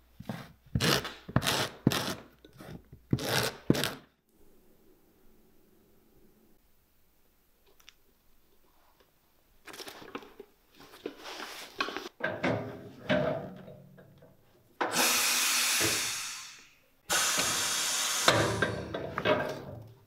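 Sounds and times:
bench power tool running: 14.9s - 18.8s.

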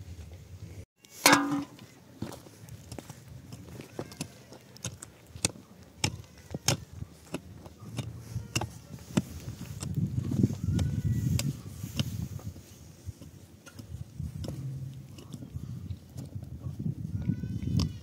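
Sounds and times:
digging tool striking stony earth: 1.1s - 1.9s, 3.5s - 15.6s
low rumble: 14.3s - 15.9s.

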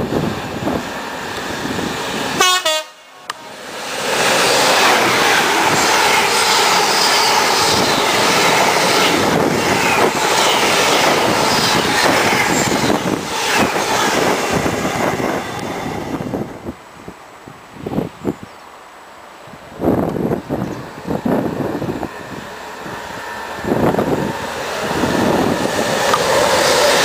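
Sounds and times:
train wheels on rails: 0.0s - 16.8s, 19.6s - 27.0s
wheels clacking over rail joints: 23.4s - 27.0s.

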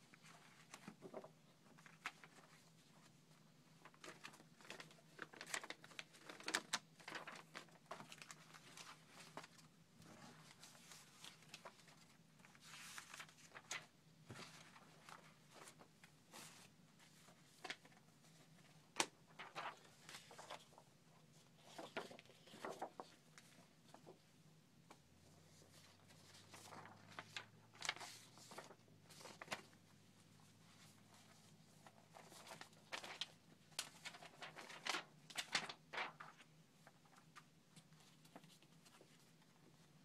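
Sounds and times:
paper rustling and crinkling: 0.0s - 24.3s, 25.4s - 40.0s.

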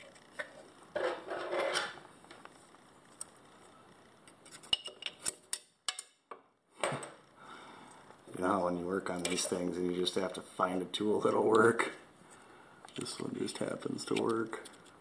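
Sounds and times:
metal tool scraping: 0.9s - 2.0s.

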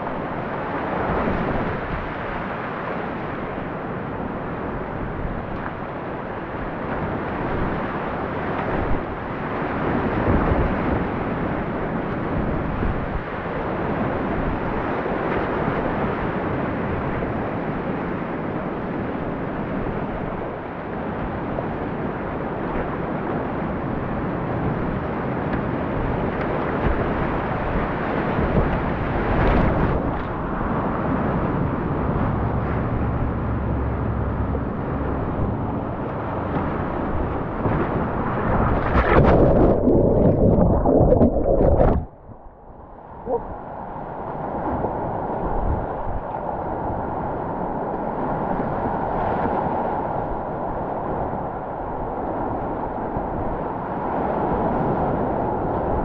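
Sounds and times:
whitewater rushing: 31.6s - 42.2s
water splashing: 32.3s - 42.5s.

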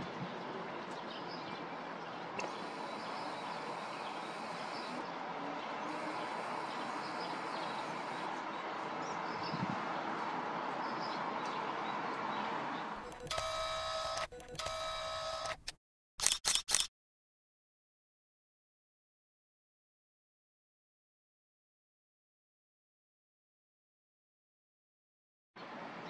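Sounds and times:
city background noise: 0.0s - 16.9s, 25.6s - 26.0s.

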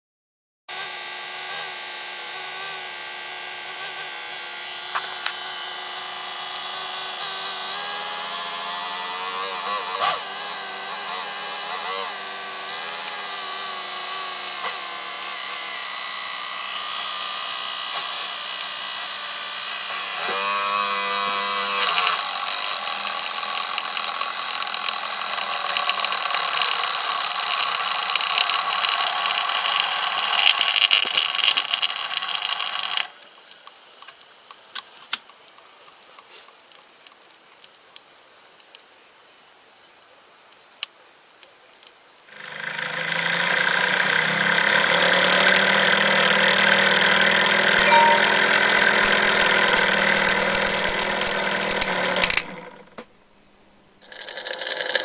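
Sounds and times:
small electric motor whining: 0.7s - 33.7s, 42.3s - 53.1s
motor crackling: 0.8s - 20.4s, 43.8s - 53.0s.

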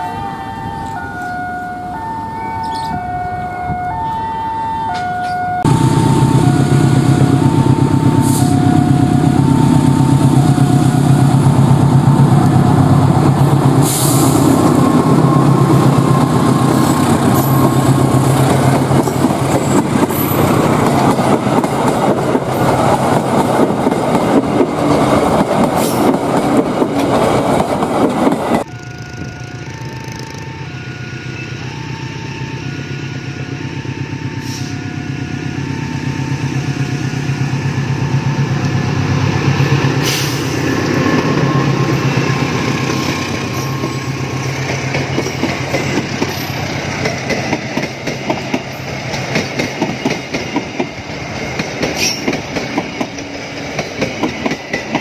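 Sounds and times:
two-tone level crossing alarm: 0.0s - 11.6s, 28.6s - 37.6s
locomotive engine passing: 0.0s - 55.0s
train wheels clattering on rails: 13.4s - 28.7s, 39.4s - 55.0s.

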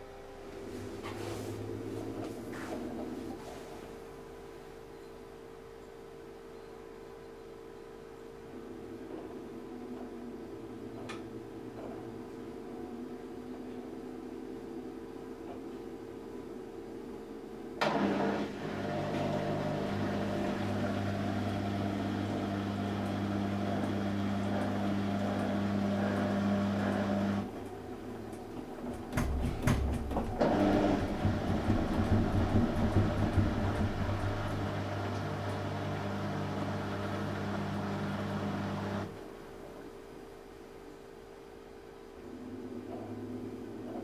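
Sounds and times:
washing machine motor humming: 0.0s - 4.8s, 17.8s - 40.4s
washing machine clicks: 28.3s - 34.7s.

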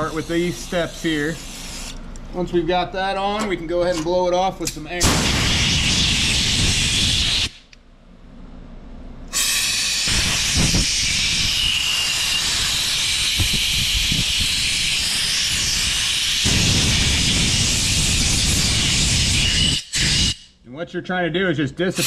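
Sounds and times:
compressed air blow gun hissing: 0.0s - 2.0s, 5.2s - 7.7s, 9.3s - 20.5s.

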